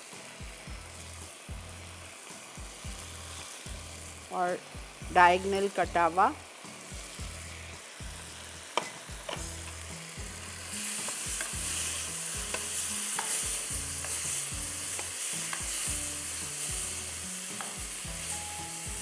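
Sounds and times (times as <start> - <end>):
food sizzling in a wok: 0.0 - 19.0
spatula clinking and scraping pan: 11.0 - 15.9.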